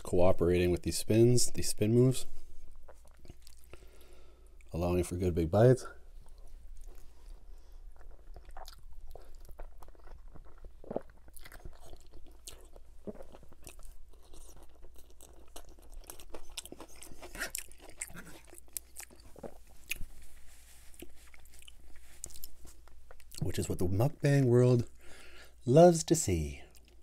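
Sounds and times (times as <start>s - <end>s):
wet chewing and slurping: 6.2s - 23.5s.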